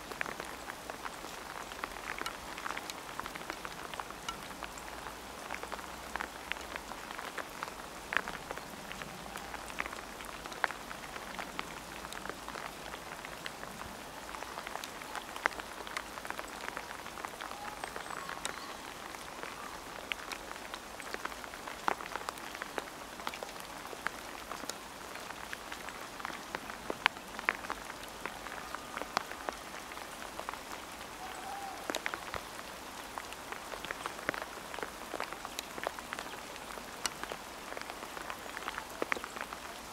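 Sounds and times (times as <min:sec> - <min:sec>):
rain pattering: 0:00.0 - 0:39.9.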